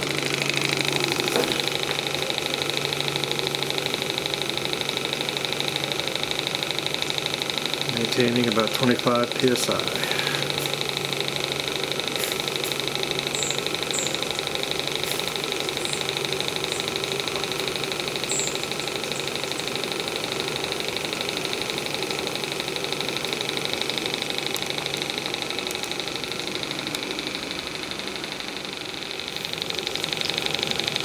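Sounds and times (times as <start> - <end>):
model steam engine chuffing: 0.0 - 31.0
steady steam hiss: 9.6 - 18.3.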